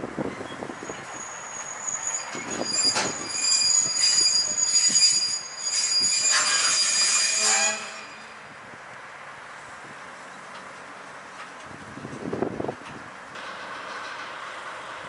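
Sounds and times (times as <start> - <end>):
train brakes squealing: 0.4 - 8.6.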